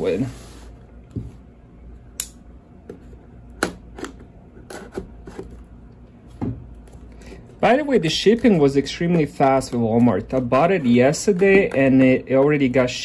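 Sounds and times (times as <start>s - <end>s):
fingers picking at tape: 7.6s - 13.0s.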